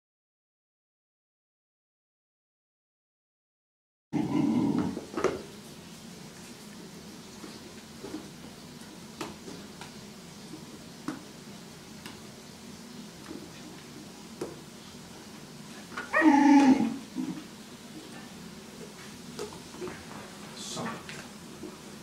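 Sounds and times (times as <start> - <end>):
puppy bark-like cry: 4.2 - 5.0, 16.0 - 17.0.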